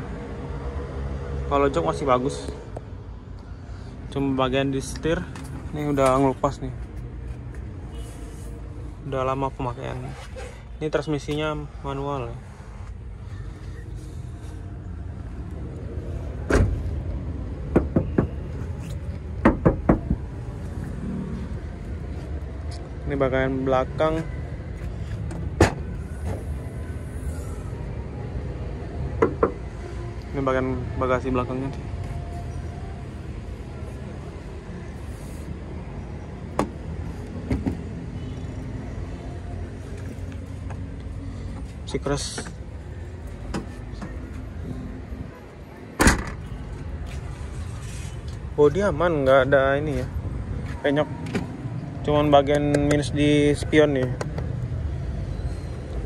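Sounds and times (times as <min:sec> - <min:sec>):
low rumble of vehicles: 0:00.0 - 0:56.0
car door shutting: 0:16.4 - 0:16.9, 0:46.0 - 0:46.6.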